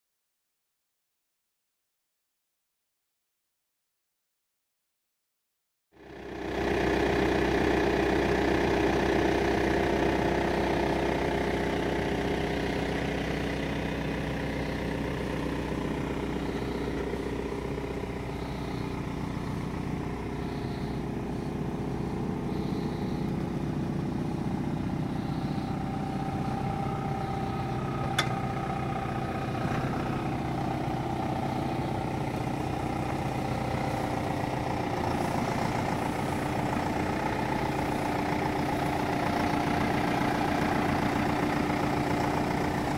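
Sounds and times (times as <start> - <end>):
tractor engine idling: 6.0 - 42.9.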